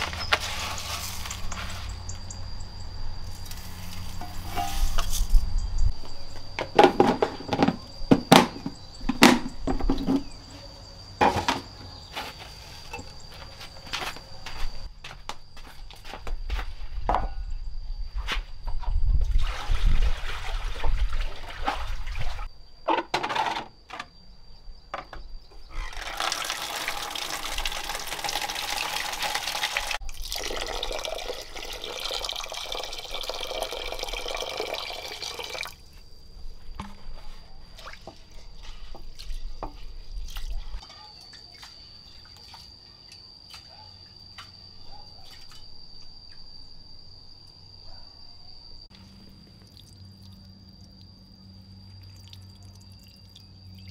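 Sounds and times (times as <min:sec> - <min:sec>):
high insect tone: 0:00.0 - 0:19.3, 0:21.0 - 0:53.9
knocks and handling thumps: 0:06.0 - 0:10.4, 0:36.7 - 0:37.3
water running or pouring: 0:25.8 - 0:35.8.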